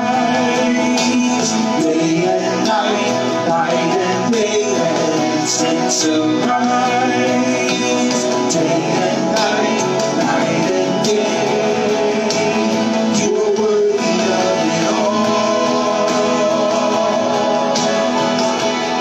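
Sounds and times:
guitar-led worship band music: 0:00.0 - 0:19.0
people singing: 0:00.0 - 0:19.0.

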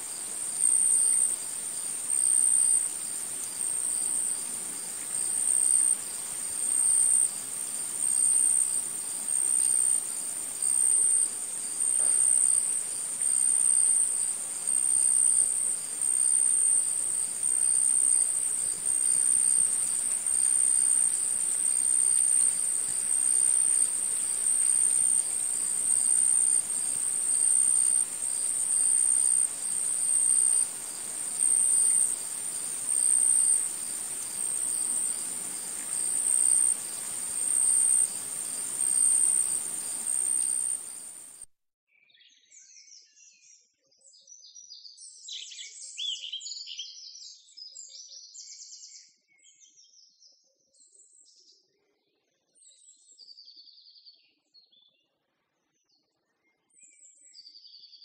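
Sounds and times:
high-pitched insect trill: 0:00.0 - 0:41.4.

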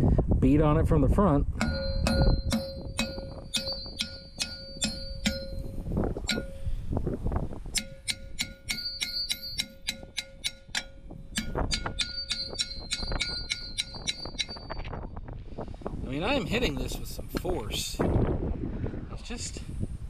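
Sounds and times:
hammer striking ringing metal drum: 0:01.6 - 0:06.8, 0:07.8 - 0:14.9.

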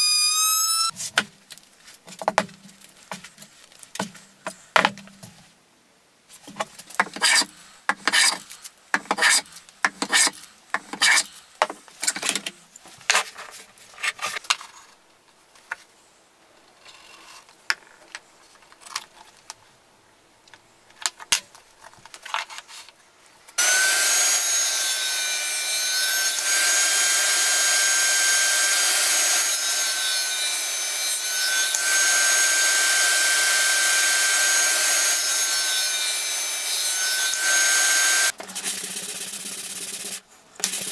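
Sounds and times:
table saw whining: 0:00.0 - 0:00.9, 0:23.6 - 0:38.3.

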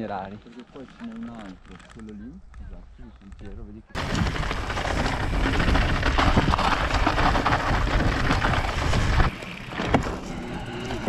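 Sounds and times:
wind buffeting microphone: 0:04.0 - 0:09.3.

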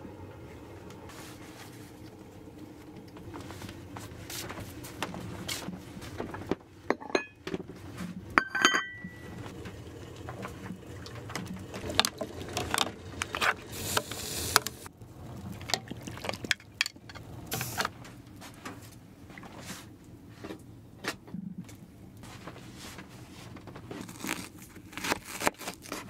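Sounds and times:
pots and dishes clinking: 0:06.9 - 0:07.6, 0:08.3 - 0:09.5
ringing metallic clink: 0:08.4 - 0:09.2.

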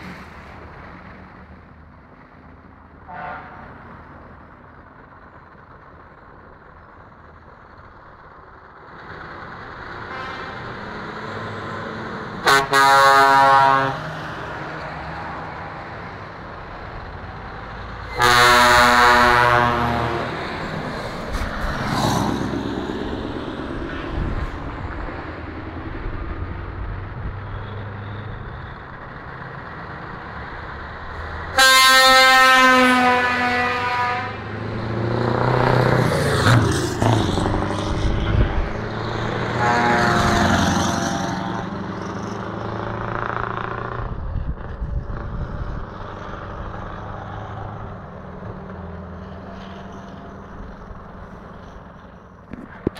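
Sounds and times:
diesel trucks passing: 0:00.0 - 0:52.9
truck air horn blasts: 0:03.1 - 0:03.8, 0:10.0 - 0:10.7, 0:12.4 - 0:14.2, 0:18.1 - 0:20.4, 0:31.5 - 0:34.5, 0:39.4 - 0:41.6.

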